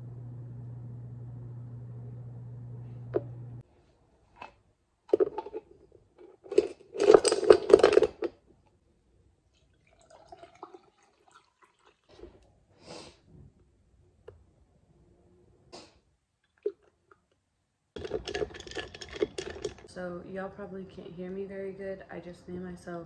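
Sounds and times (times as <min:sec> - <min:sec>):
ice cubes clattering into a glass: 0:06.5 - 0:08.3, 0:18.0 - 0:19.9
liquid pouring into a glass: 0:09.6 - 0:12.1
bottle handling: 0:18.0 - 0:19.9.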